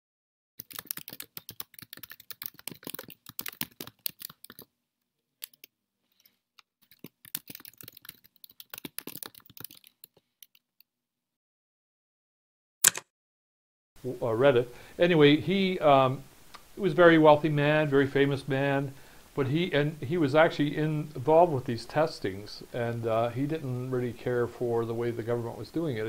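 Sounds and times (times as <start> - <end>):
keyboard typing clicks: 0.6 - 4.7, 5.4 - 5.7, 6.8 - 10.6.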